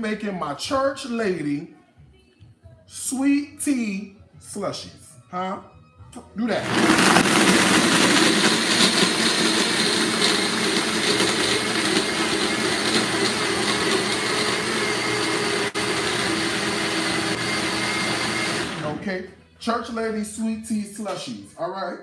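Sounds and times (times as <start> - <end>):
blender blending ice: 6.6 - 19.0.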